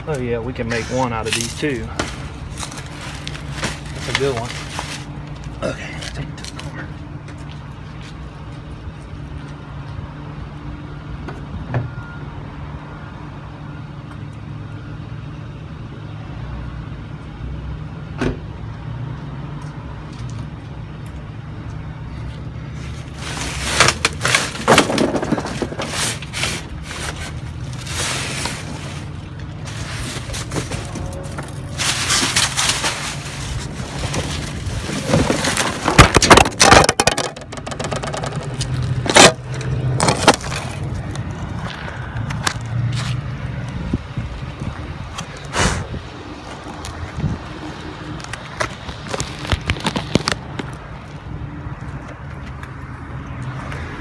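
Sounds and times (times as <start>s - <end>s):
cardboard boxes rustling and scraping: 0.6s - 5.2s, 22.8s - 39.4s, 40.0s - 41.1s
small knocks: 35.9s - 39.3s.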